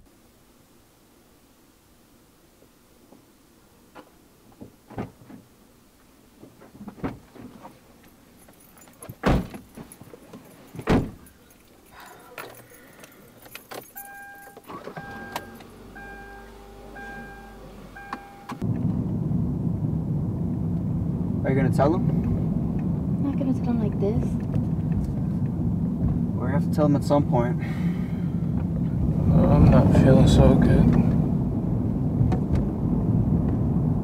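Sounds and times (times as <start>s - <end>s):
keys jangling: 8.0s - 14.9s
car doors opening: 8.8s - 11.5s, 13.3s - 18.7s
car door slams: 9.2s - 9.7s, 10.8s - 11.3s, 14.4s - 18.7s
car warning chime: 13.8s - 18.6s.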